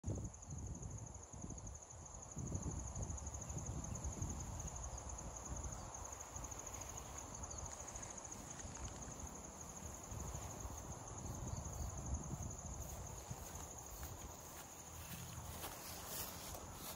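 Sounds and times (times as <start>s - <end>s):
insects trilling: 0.1s - 16.9s.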